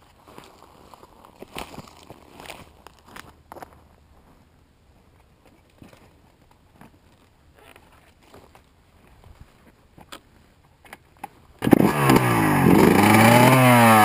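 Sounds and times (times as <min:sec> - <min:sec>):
footsteps on dry stubble: 0:00.0 - 0:04.5.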